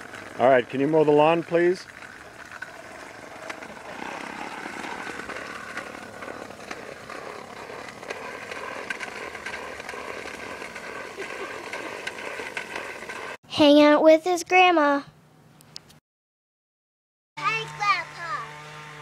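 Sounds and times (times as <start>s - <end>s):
toy lawn mower rattling: 0.0s - 13.4s.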